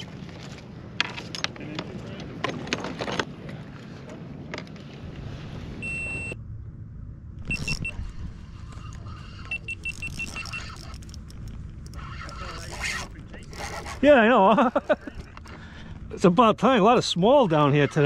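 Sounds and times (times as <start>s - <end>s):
steady low rumble: 3.3s - 18.0s
electronic beeping: 7.4s - 8.1s, 9.4s - 12.5s.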